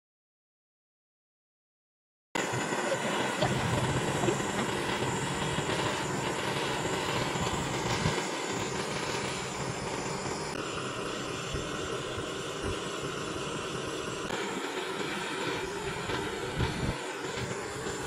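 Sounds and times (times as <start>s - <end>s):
gas torch hissing: 2.4s - 18.0s.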